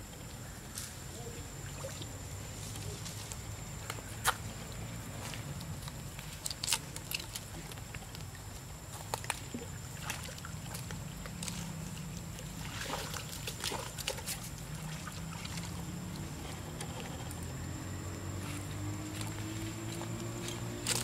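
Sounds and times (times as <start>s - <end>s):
steady low hum: 0.0s - 21.0s
pool water splashing: 6.6s - 21.0s.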